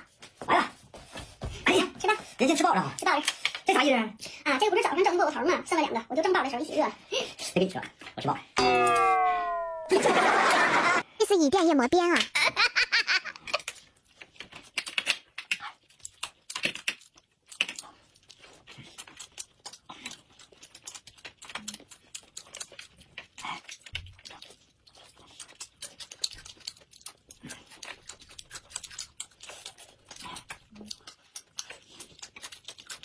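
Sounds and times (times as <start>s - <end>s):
people chewing food: 12.3s - 33.0s
mouth clicks and smacks: 13.3s - 33.0s.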